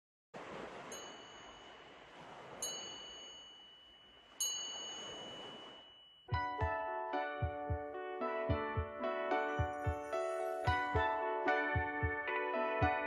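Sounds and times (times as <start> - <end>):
soft rushing wash: 0.4 - 6.0
high-pitched chime ringing: 0.9 - 2.0, 2.6 - 6.4.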